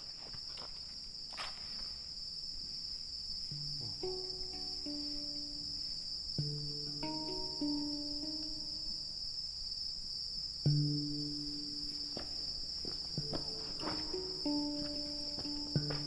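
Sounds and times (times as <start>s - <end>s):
insects trilling: 0.0s - 16.0s
handpan notes ringing: 3.5s - 9.2s, 10.6s - 16.0s.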